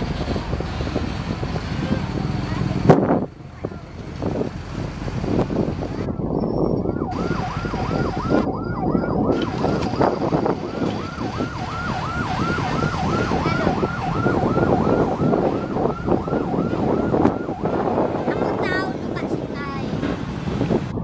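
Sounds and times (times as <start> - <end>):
heavy truck engines rumbling: 0.0 - 21.0
yelp siren: 6.0 - 18.1.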